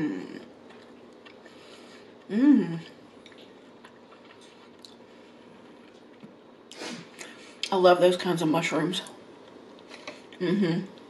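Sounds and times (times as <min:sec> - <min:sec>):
woman humming mmm: 0:00.0 - 0:00.5, 0:02.3 - 0:03.0, 0:10.4 - 0:11.0.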